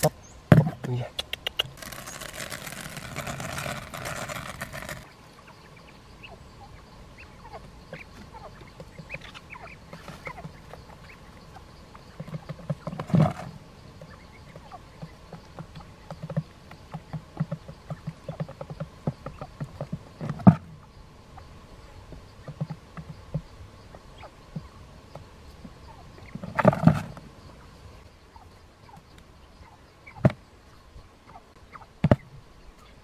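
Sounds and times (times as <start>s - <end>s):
quail pecking taps: 0.5s - 5.1s, 7.4s - 20.6s, 22.1s - 23.5s, 24.2s - 27.3s, 28.8s - 30.4s, 31.3s - 32.9s
rice pattering onto cardboard: 1.7s - 5.1s.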